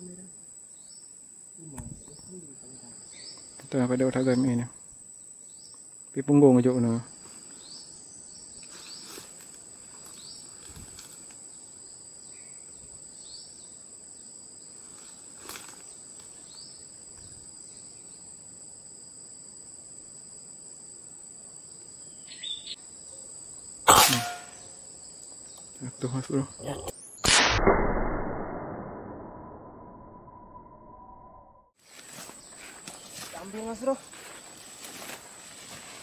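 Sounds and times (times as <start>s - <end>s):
insects droning: 0.0s - 27.2s, 29.0s - 36.0s
air rifle shot: 23.9s - 24.6s, 27.2s - 29.8s.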